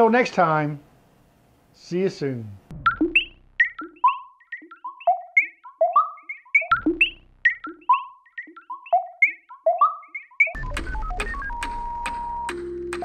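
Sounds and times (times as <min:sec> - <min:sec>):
keyboard melody: 0:03.1 - 0:13.0.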